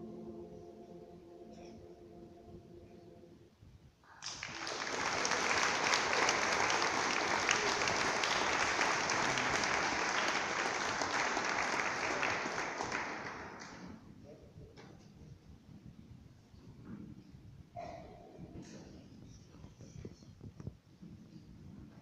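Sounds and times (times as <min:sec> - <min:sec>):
choir holding chord: 0:00.0 - 0:03.4
audience applauding: 0:04.1 - 0:14.0.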